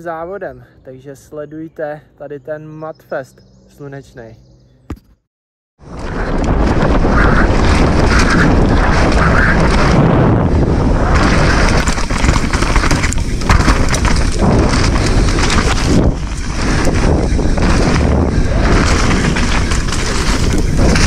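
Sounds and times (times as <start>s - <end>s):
wind buffeting microphone: 5.8s - 21.0s
bike clattering on rough ground: 5.9s - 21.0s.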